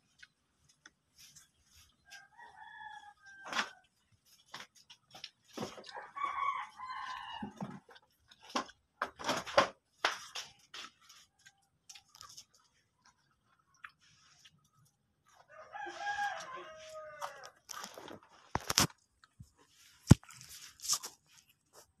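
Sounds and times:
rooster crowing: 0:02.1 - 0:03.9, 0:05.9 - 0:07.6, 0:15.5 - 0:17.6.

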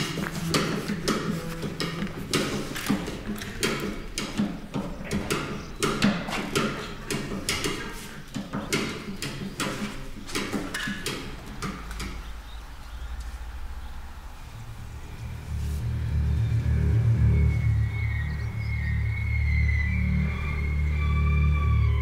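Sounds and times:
sharp knocks and clicks: 0:00.0 - 0:12.4
low rumble: 0:13.0 - 0:22.0.

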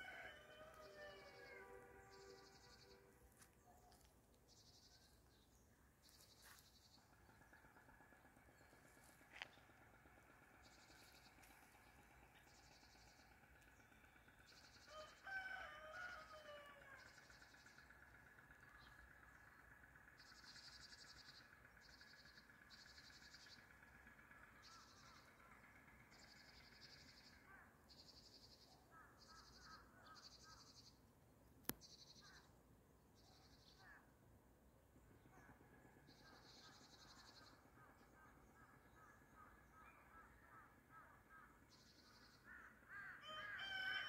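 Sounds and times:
distant rooster crowing: 0:00.0 - 0:03.1, 0:14.8 - 0:17.3, 0:43.1 - 0:44.0.

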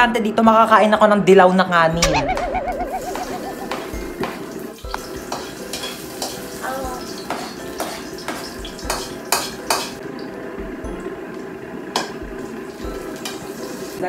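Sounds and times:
food sizzling in a frying pan: 0:03.8 - 0:14.0.

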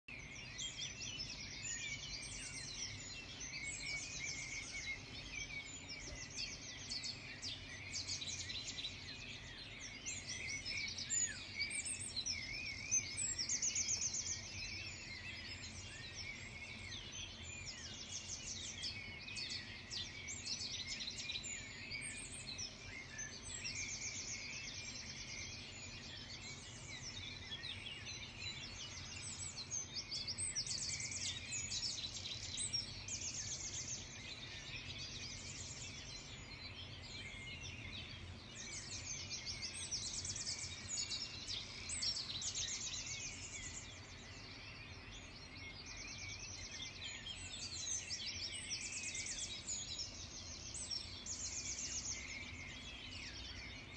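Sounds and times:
songbirds chirping and trilling: 0:00.0 - 0:53.9.

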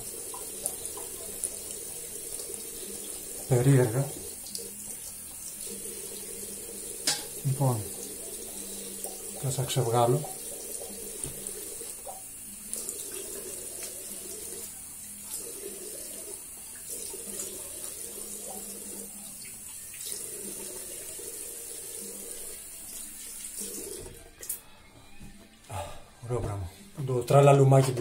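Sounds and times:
tap running into sink: 0:07.0 - 0:07.8, 0:09.0 - 0:14.0.

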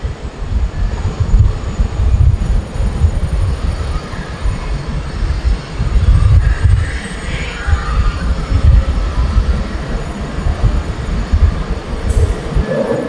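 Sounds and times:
jet engines rumbling: 0:00.0 - 0:13.0
high engine whine: 0:06.0 - 0:13.0.

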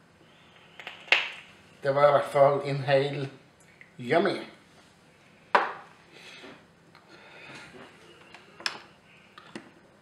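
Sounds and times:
soft rustling and shuffling: 0:04.6 - 0:05.4
object set down on table: 0:05.5 - 0:06.6.

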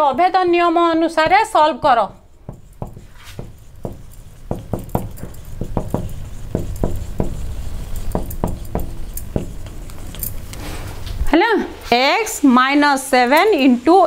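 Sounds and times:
marker tapping whiteboard: 0:02.4 - 0:10.1.

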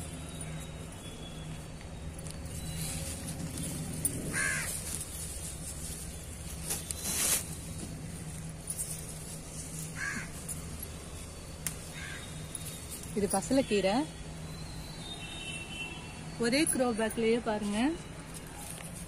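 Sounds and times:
crow cawing: 0:04.3 - 0:04.8, 0:10.0 - 0:10.4, 0:11.9 - 0:12.3.

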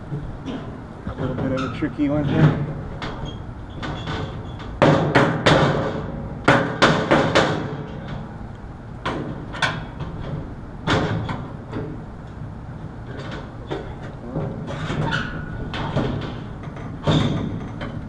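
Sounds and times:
knocks and bangs on sheet metal: 0:03.8 - 0:08.2, 0:09.0 - 0:11.5, 0:14.4 - 0:18.0.

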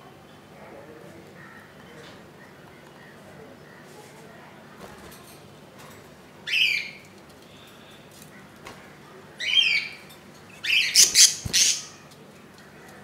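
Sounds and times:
wings flapping: 0:11.1 - 0:11.8.

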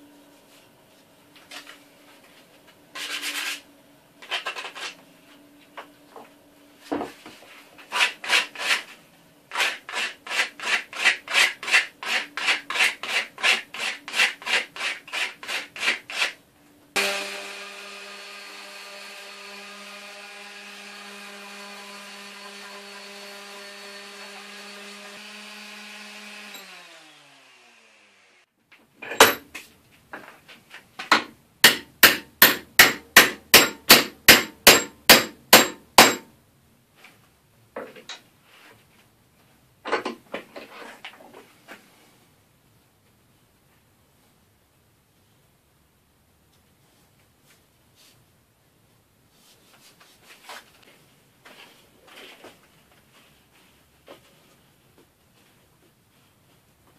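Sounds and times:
orbital sander running: 0:17.0 - 0:28.4.

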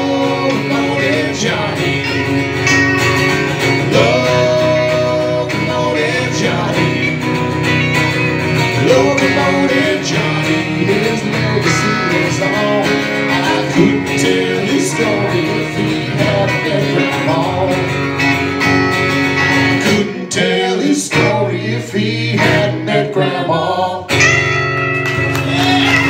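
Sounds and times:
men singing along: 0:00.0 - 0:02.4, 0:03.6 - 0:07.4, 0:08.7 - 0:18.1, 0:19.7 - 0:24.2
guitars strumming: 0:00.0 - 0:26.0.

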